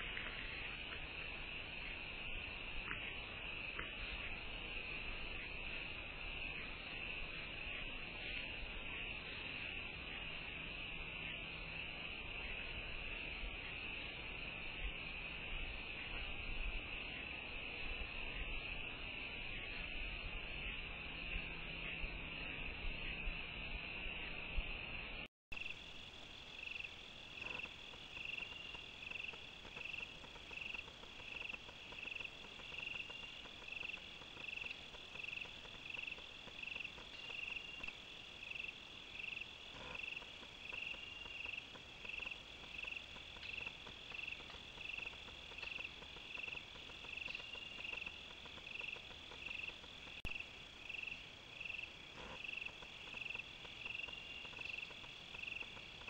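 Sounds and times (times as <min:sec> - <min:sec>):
crickets chirping: 0:00.0 - 0:56.0
high insect trill: 0:25.6 - 0:56.0.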